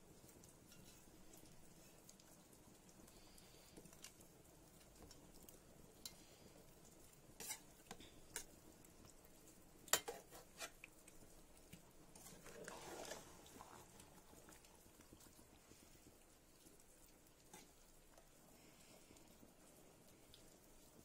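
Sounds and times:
spatula scraping through sauce: 0:07.4 - 0:07.8, 0:10.0 - 0:10.9, 0:12.1 - 0:14.1
metal spatula clinking on pot: 0:09.9 - 0:10.7.

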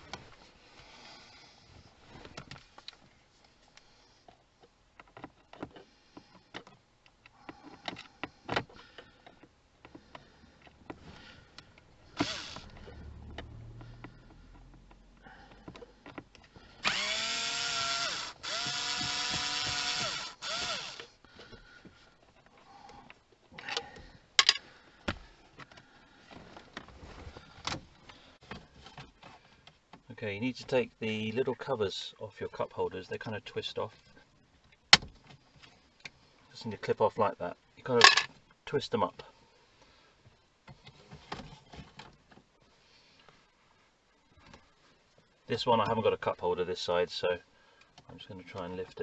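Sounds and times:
electric screwdriver running: 0:12.2 - 0:12.7, 0:16.8 - 0:21.1.

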